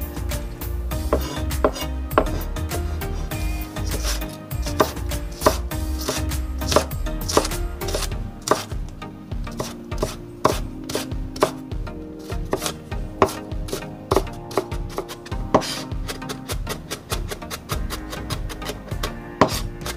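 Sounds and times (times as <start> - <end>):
knife slicing on wooden board: 3.9 - 8.7.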